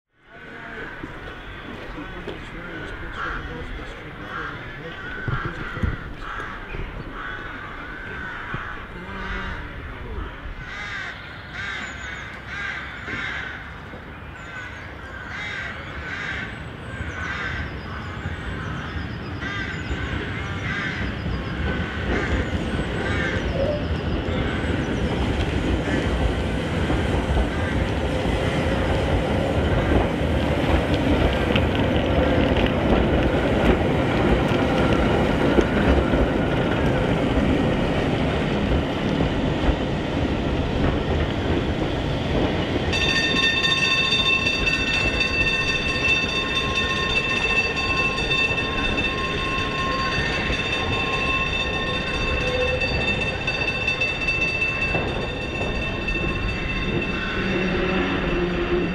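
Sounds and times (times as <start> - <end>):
electric tramcar running: 0.2 - 58.9
crows cawing: 0.6 - 13.8, 14.5 - 24.9, 25.8 - 26.2, 27.4 - 28.0.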